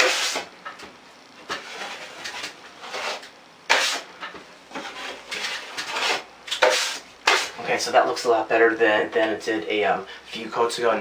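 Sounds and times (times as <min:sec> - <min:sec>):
drywall knife scraping: 0:00.0 - 0:00.5, 0:01.5 - 0:04.1, 0:04.7 - 0:07.6.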